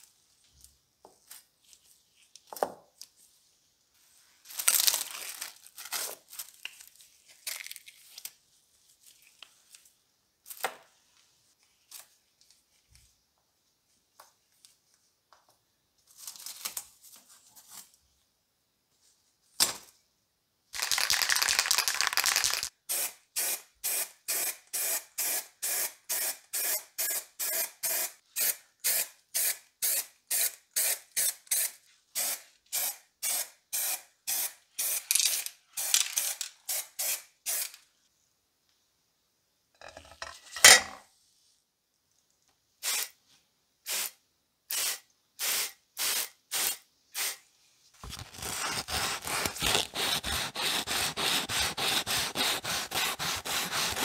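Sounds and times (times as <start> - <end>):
paper and tape tearing: 20.8 - 22.7, 48.0 - 54.0.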